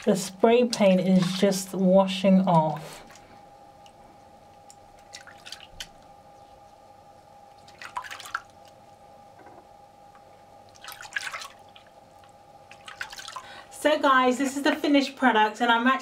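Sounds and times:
faint steady hum: 0.0s - 16.0s
hands splashing in sink water: 5.0s - 6.0s, 7.6s - 8.6s, 10.8s - 11.9s, 12.7s - 13.5s.

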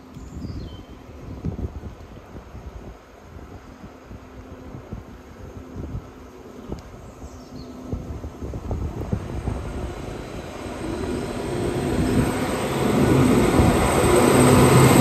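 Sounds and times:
wind buffeting microphone: 0.0s - 15.0s
diesel engine rumble: 4.9s - 15.0s.

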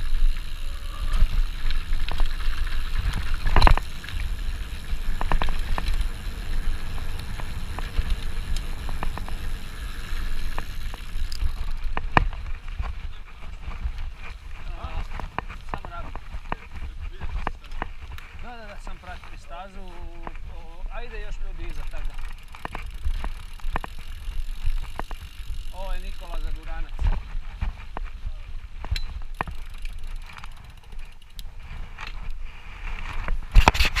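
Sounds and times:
bicycle freehub ratchet ticking: 0.0s - 12.5s, 21.0s - 26.8s, 28.9s - 31.5s
tyres rumbling on dirt: 0.0s - 27.8s
wind buffeting microphone: 0.0s - 29.8s
bike clicking and rattling: 0.0s - 34.0s.

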